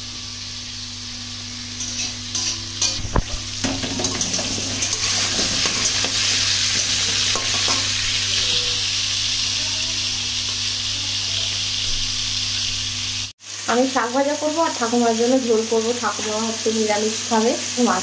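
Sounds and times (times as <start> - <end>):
onions and potatoes frying in oil: 0.0 - 18.0
metal spatula knocking on pan: 2.0 - 6.2, 7.0 - 8.0.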